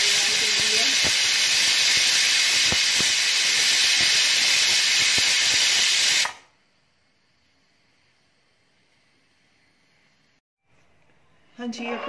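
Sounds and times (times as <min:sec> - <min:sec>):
pressure cooker whistle hissing: 0:00.0 - 0:06.5.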